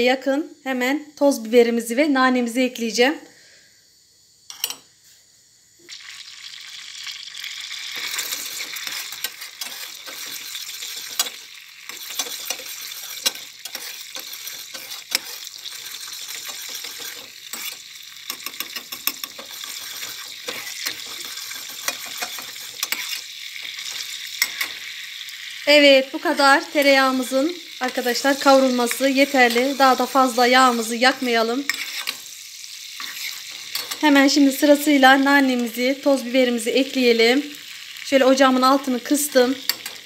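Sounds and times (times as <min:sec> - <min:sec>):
metal spoon scraping a pan: 0:04.5 - 0:04.8, 0:07.9 - 0:24.9, 0:27.8 - 0:34.2, 0:39.6 - 0:40.0
butter sizzling in a saucepan: 0:05.8 - 0:40.0.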